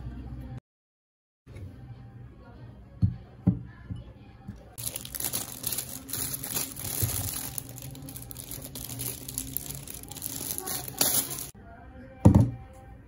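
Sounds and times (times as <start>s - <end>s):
plastic bag crinkling: 4.8s - 11.6s.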